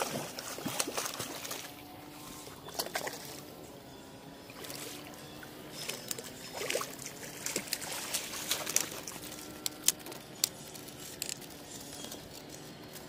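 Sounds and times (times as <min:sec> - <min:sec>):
sharp splashes and clicks: 0:00.0 - 0:01.8, 0:05.7 - 0:12.6
water splashing and dripping: 0:00.0 - 0:01.8.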